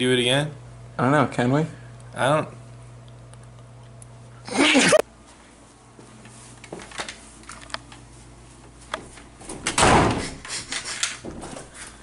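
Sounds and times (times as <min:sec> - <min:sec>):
door pushed open thump: 0:09.5 - 0:10.4.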